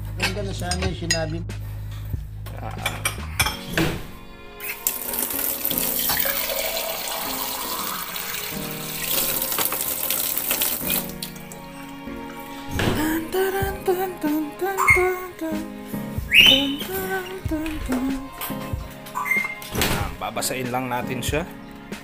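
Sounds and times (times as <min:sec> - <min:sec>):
tap water running into a jar: 0:04.8 - 0:11.7.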